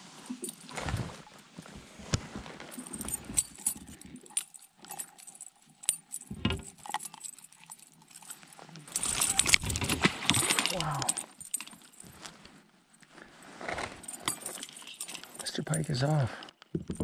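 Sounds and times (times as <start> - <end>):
handling clatter: 0.0 - 17.0.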